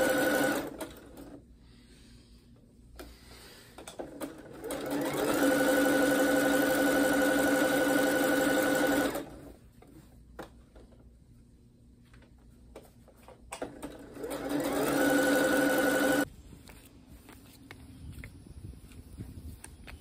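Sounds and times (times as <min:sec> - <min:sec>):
sewing machine motor whine: 0:00.0 - 0:01.3, 0:04.1 - 0:09.4, 0:13.8 - 0:16.3
sewing machine clicks: 0:03.8 - 0:09.4, 0:13.5 - 0:16.2.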